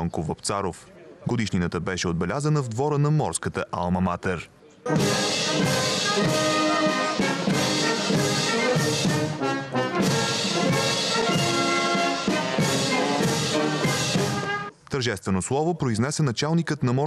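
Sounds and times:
brass band playing: 4.9s - 14.7s.

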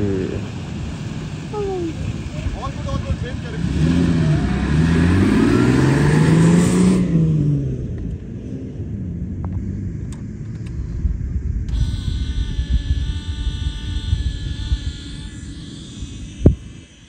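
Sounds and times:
pickup truck engine revving: 0.0s - 8.8s.

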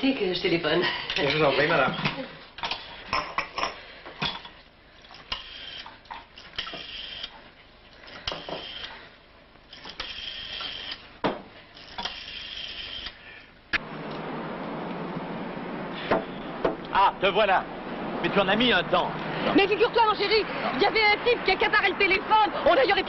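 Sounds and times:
glass and bottle knocking on counter: 11.2s - 11.5s.

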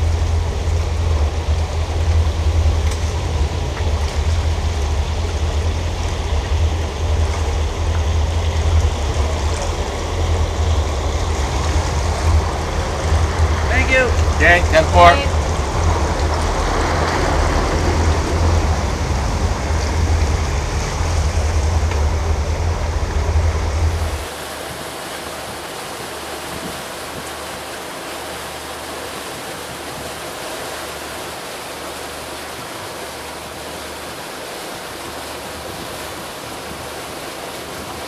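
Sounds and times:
boat engines rumbling: 0.0s - 38.0s
water and wind rushing: 0.0s - 38.0s.

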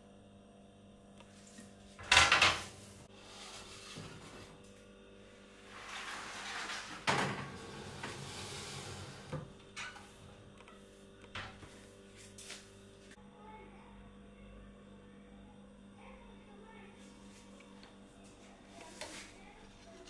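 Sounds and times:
baking pan scraping on oven rack: 5.6s - 10.1s
oven door clunking open: 6.5s - 10.0s.

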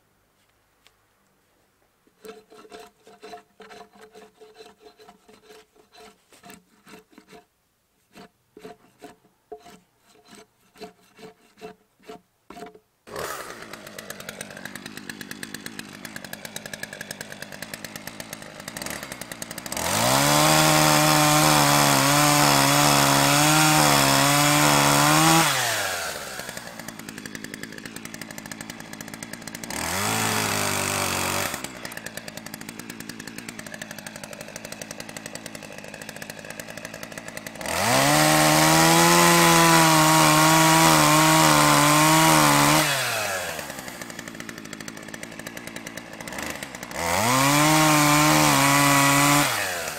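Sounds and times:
drawknife scraping wood: 2.1s - 12.8s
chainsaw idling and revving: 13.1s - 49.9s.

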